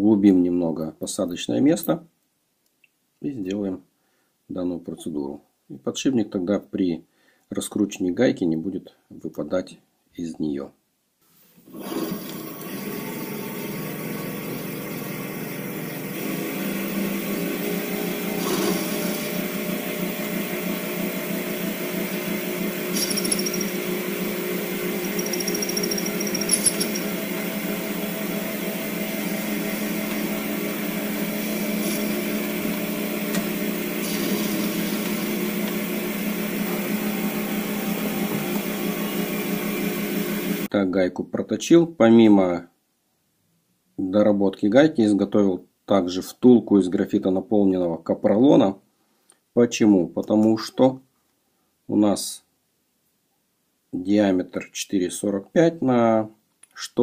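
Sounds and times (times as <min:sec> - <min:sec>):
metal lathe running: 0:22.9 - 0:23.9, 0:25.0 - 0:27.3.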